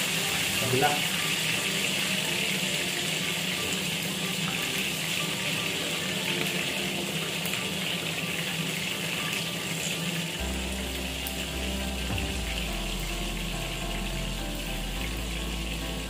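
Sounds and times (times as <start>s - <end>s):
chicken sizzling in pan: 0.0s - 16.0s
low hum: 10.4s - 16.0s.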